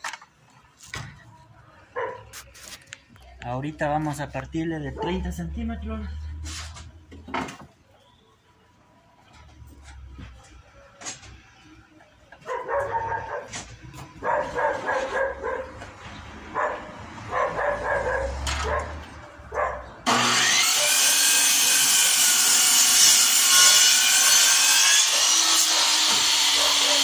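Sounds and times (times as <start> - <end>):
miter saw cutting wood: 20.0 - 27.0.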